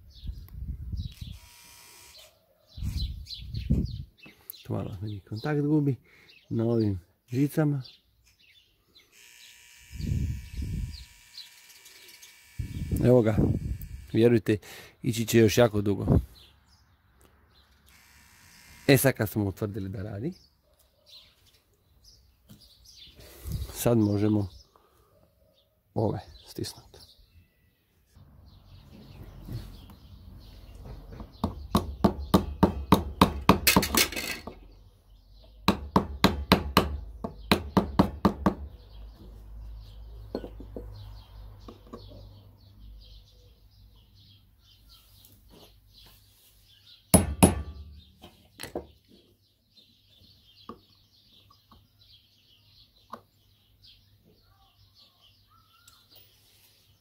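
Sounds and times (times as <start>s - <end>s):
birds chirping faintly: 18.9s - 57.0s
sharp metal taps: 47.2s - 48.0s.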